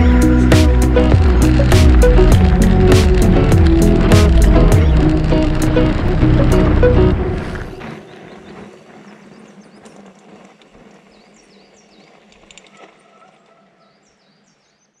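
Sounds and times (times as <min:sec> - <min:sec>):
small birds chirping: 0:07.7 - 0:15.0.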